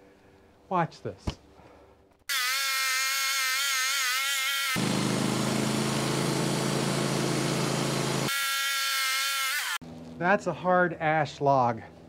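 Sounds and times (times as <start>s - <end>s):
band saw sawing log: 2.3s - 9.8s.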